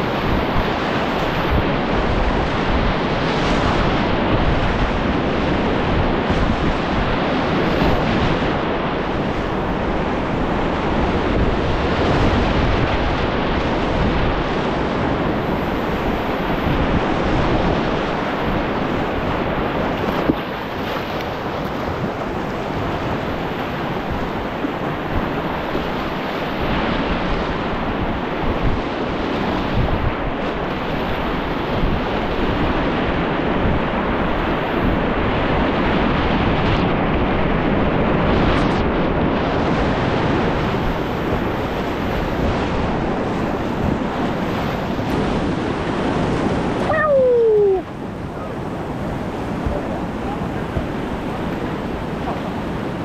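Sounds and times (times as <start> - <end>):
wind buffeting microphone: 0.0 - 53.0
falling pitch tone: 46.8 - 47.9.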